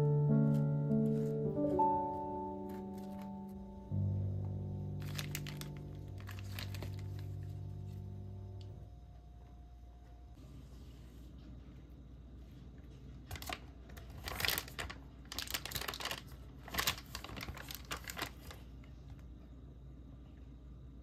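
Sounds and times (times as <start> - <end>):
packaging crinkling: 2.6 - 3.6, 4.9 - 8.0, 13.2 - 18.9.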